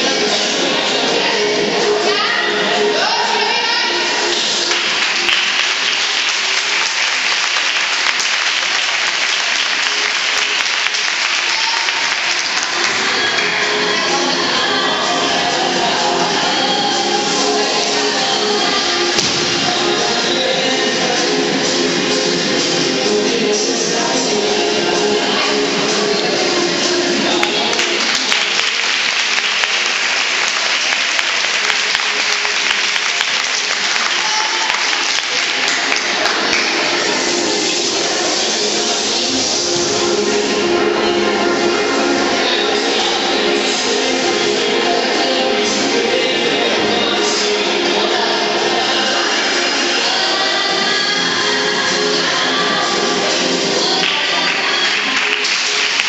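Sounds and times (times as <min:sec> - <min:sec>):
faint background music: 0:00.0 - 0:56.0
audience applauding: 0:04.3 - 0:13.6, 0:27.4 - 0:37.0, 0:54.0 - 0:56.0
children clapping: 0:04.3 - 0:13.6, 0:27.4 - 0:37.1, 0:54.0 - 0:56.0.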